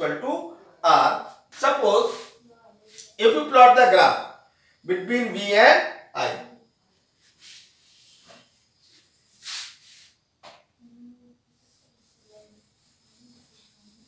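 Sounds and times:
duster swishing on whiteboard: 1.3s - 3.2s, 7.2s - 10.6s, 11.5s - 14.0s.

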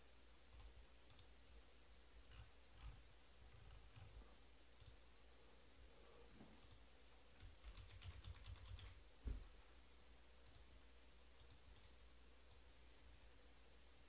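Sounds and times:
faint clicking and tapping: 0.5s - 1.4s, 2.2s - 5.1s, 6.3s - 9.5s, 10.4s - 12.7s
light ticks: 11.4s - 12.7s.

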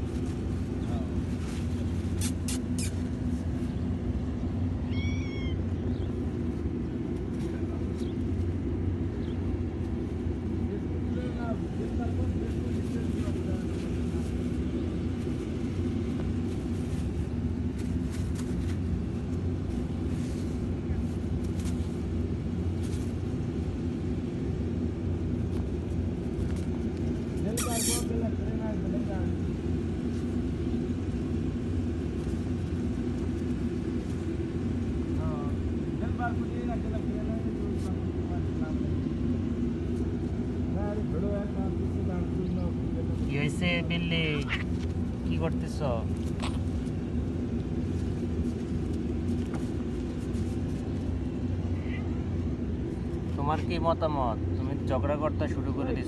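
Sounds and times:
low mechanical drone: 0.0s - 56.0s
cat meowing: 4.8s - 5.8s.

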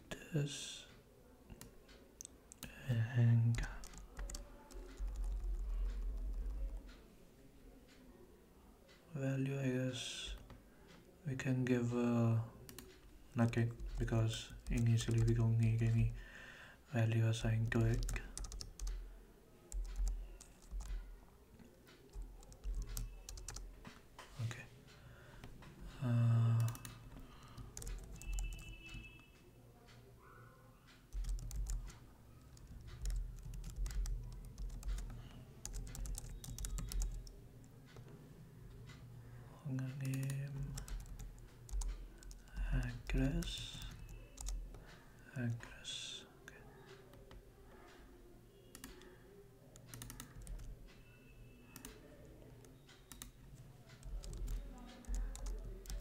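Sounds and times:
typing on computer keyboard: 3.4s - 7.0s, 12.7s - 16.2s, 17.4s - 19.1s, 19.7s - 21.2s, 21.9s - 23.7s, 26.5s - 30.0s, 31.1s - 38.1s, 39.9s - 45.8s, 48.6s - 49.1s, 49.7s - 56.0s.

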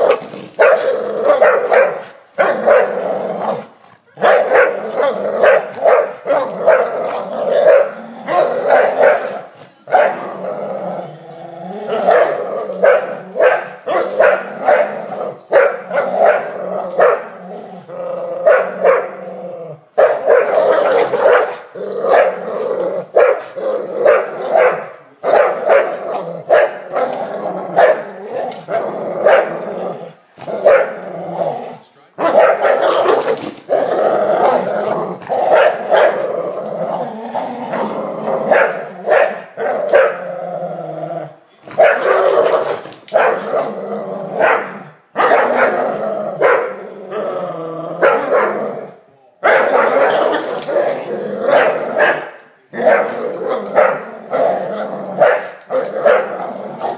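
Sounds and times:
dogs barking sharply: 0.0s - 3.0s, 4.2s - 10.2s, 12.0s - 17.4s, 18.4s - 19.2s, 19.9s - 22.4s, 23.0s - 27.2s, 27.8s - 28.1s, 29.2s - 29.6s, 30.4s - 31.0s, 32.2s - 33.6s, 35.2s - 36.2s, 38.5s - 40.2s, 41.7s - 43.6s, 44.4s - 46.8s, 48.0s - 48.6s, 49.4s - 50.7s, 51.5s - 54.4s, 55.2s - 56.9s
dogs play growling: 0.0s - 56.9s.

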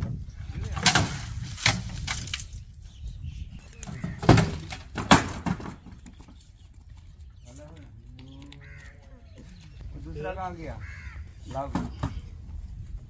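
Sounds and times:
knocks and bangs on livestock truck: 3.9s - 6.1s.

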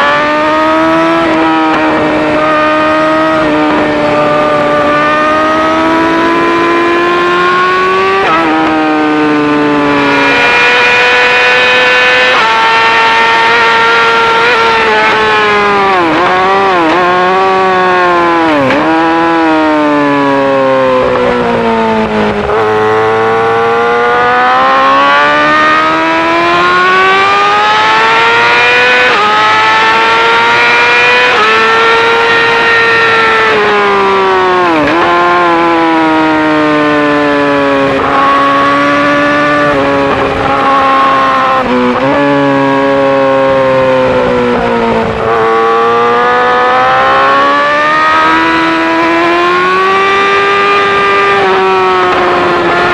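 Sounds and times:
motorcycle engine revving: 0.0s - 52.9s.

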